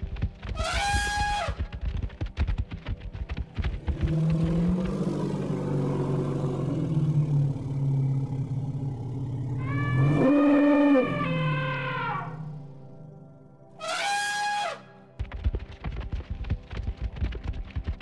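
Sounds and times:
low rumbling growl: 3.8 - 13.2
mammoth trumpeting call: 13.8 - 14.8.

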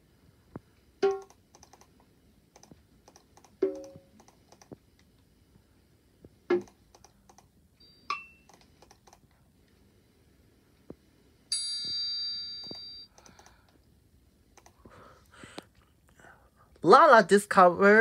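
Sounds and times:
laptop clicking: 1.0 - 4.8, 6.5 - 7.5, 8.4 - 9.3, 12.6 - 13.8, 14.5 - 14.8.

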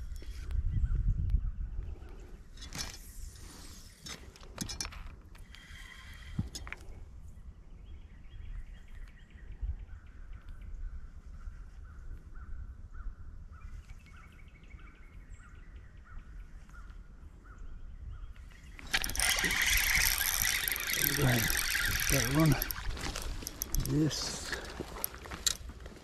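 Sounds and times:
rustling of rod and reel: 0.0 - 0.6, 1.9 - 7.4, 18.3 - 26.0
low wind rumble: 0.0 - 26.0.

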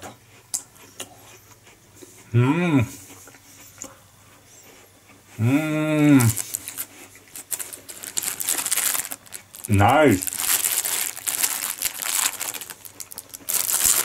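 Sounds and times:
man humming: 2.3 - 3.0, 5.4 - 6.4
plastic tray crinkling: 6.2 - 14.0.

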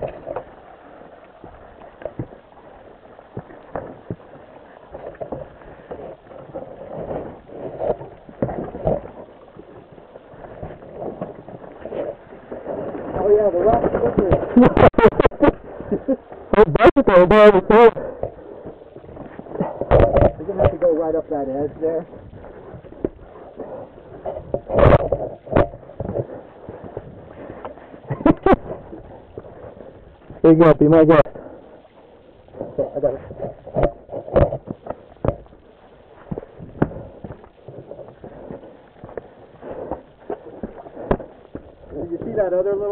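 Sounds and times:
dirt bike knocking on rock: 33.8 - 35.5
knocks and scuffing on rocks: 36.2 - 42.9.

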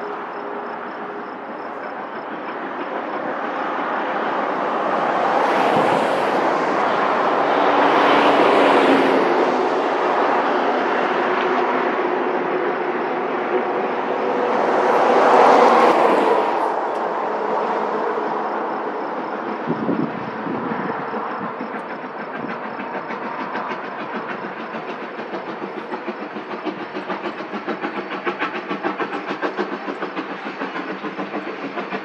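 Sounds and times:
vehicles passing: 4.2 - 11.6, 13.6 - 20.6.

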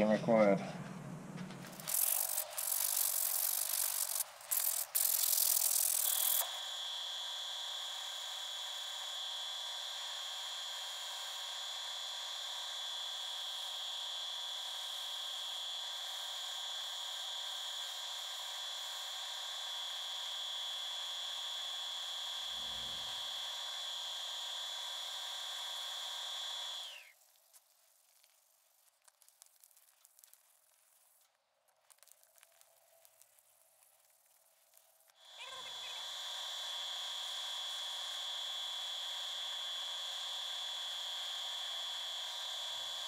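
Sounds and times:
lathe motor whining: 1.7 - 27.2, 35.2 - 43.0.

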